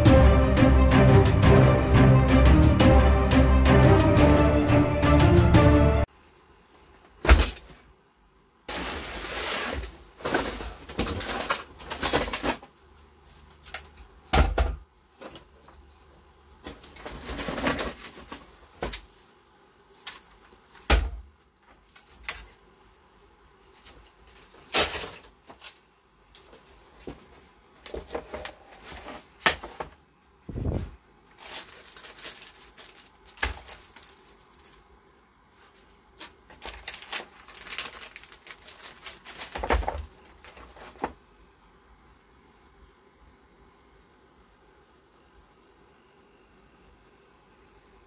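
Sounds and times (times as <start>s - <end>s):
rummaging in cardboard box: 8.7s - 12.6s, 27.8s - 30.0s, 30.6s - 34.8s, 36.5s - 41.2s.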